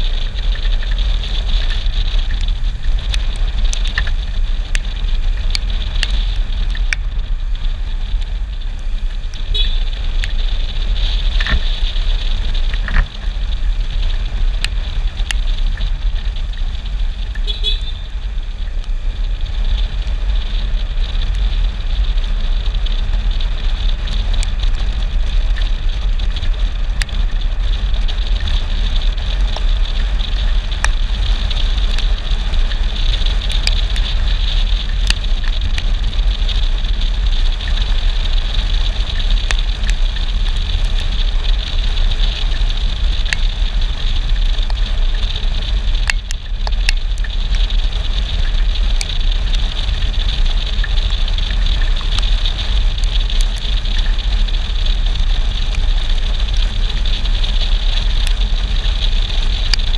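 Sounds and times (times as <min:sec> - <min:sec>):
wind and tyre noise: 0:00.0 - 0:59.9
sharp ticks: 0:24.0 - 0:59.9.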